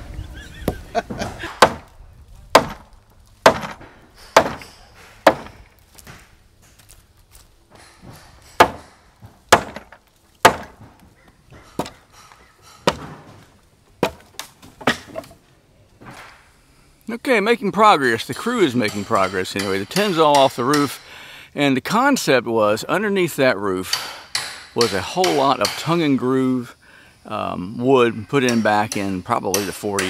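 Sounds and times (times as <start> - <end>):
sledgehammer striking wooden boards: 1.1 - 1.9, 2.5 - 6.3, 7.8 - 11.0, 11.8 - 12.0, 12.7 - 15.3.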